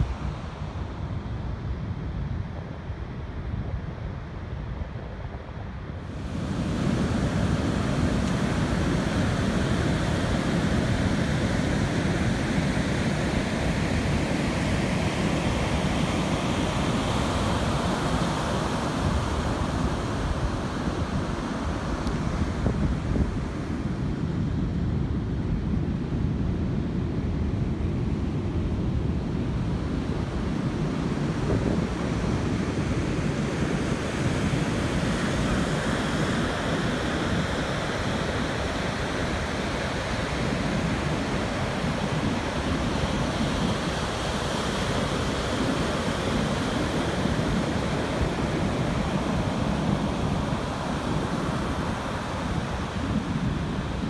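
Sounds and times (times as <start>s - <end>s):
ocean surf breaking: 34.0s - 54.0s.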